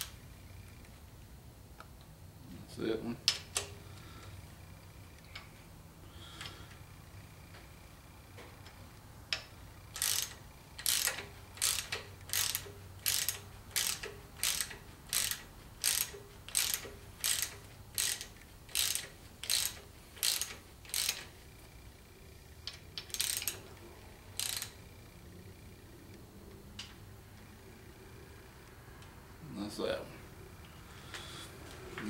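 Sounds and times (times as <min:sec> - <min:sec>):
ratchet wrench clicking: 0:08.6 - 0:21.3, 0:22.6 - 0:23.7, 0:24.3 - 0:25.0.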